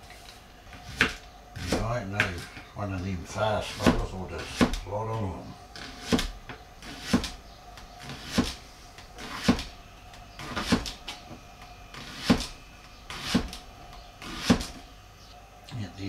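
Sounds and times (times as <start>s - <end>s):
knife chopping on wooden board: 0.9s - 2.4s, 3.7s - 4.9s, 5.8s - 7.4s, 8.0s - 8.6s, 9.2s - 9.7s, 10.4s - 11.0s, 12.0s - 13.6s, 14.2s - 14.8s.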